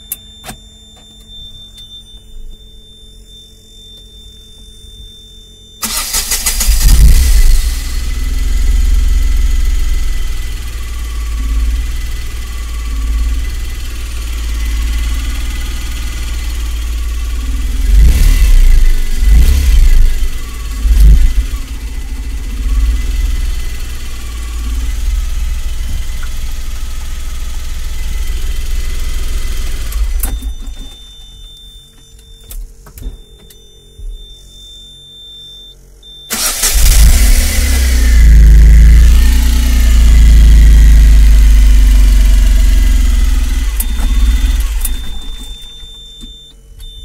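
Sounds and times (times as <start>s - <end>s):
engine running and revving: 6.5s - 30.3s, 36.5s - 45.0s.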